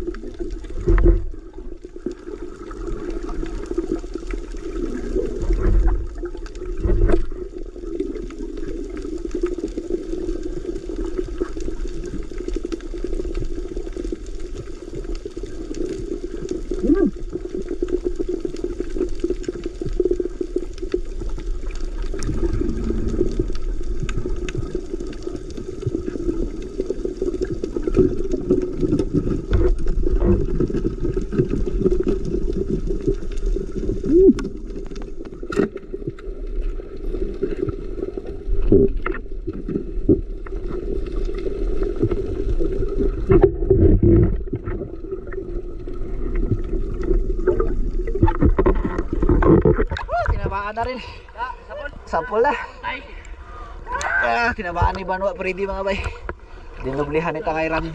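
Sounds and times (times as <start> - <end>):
muffled underwater water rush: 0.0 - 57.9.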